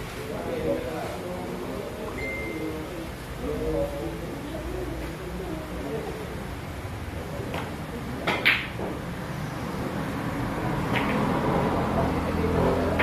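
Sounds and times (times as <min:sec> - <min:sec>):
cue tip hitting ball: 0:07.5 - 0:09.0, 0:10.9 - 0:11.3
pool balls clacking: 0:07.6 - 0:09.0, 0:10.9 - 0:11.3.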